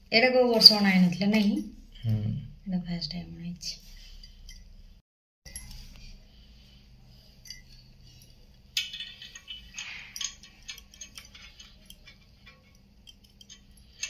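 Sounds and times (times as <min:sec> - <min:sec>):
jewellery clinking and jingling: 0:07.3 - 0:14.0.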